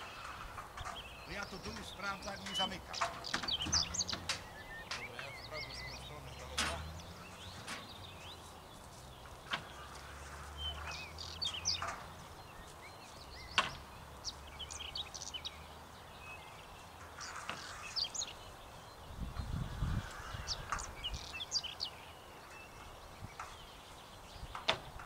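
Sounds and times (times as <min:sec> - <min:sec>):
cage doors shutting: 0:00.0 - 0:05.3, 0:06.4 - 0:08.0
small birds chirping: 0:00.0 - 0:25.0.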